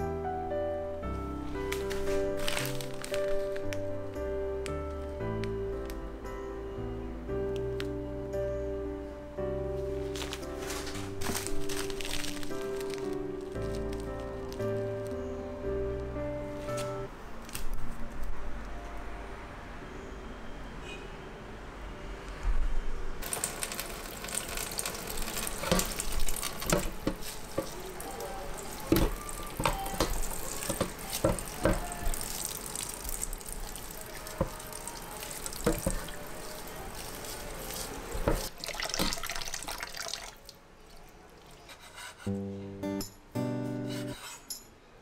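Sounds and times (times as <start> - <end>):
tap water running into sink: 23.2 - 27.8, 28.6 - 40.4
water splashing: 23.2 - 40.6
meat knocking against tray: 28.9 - 31.9.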